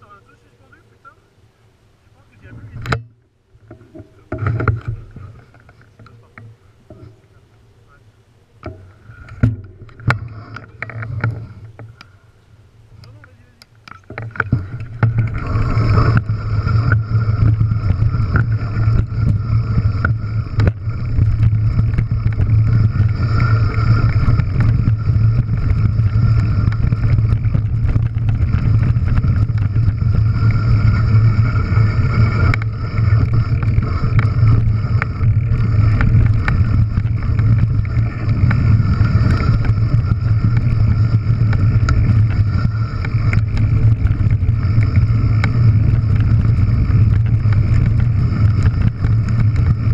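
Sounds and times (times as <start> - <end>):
bike clicks and rattles: 2.6 - 7.4, 8.6 - 12.2, 13.0 - 49.9
tyres rolling over gravel: 3.6 - 8.0, 13.1 - 49.9
wind buffeting microphone: 13.0 - 49.9.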